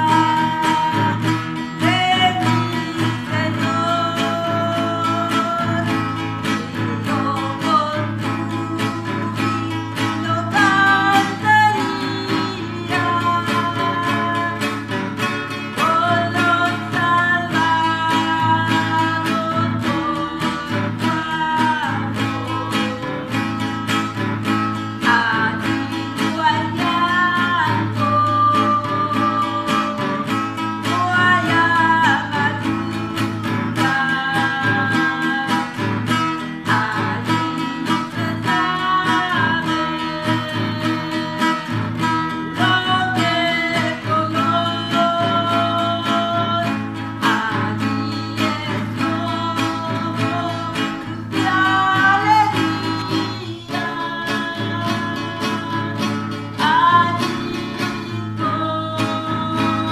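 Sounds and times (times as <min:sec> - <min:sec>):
classical guitar strumming: 0:00.0 - 0:59.9
woman singing: 0:00.0 - 0:59.9.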